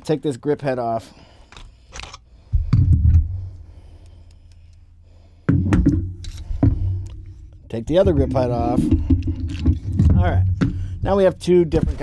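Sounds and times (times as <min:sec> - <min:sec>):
heavy low thuds: 0:05.5 - 0:12.0.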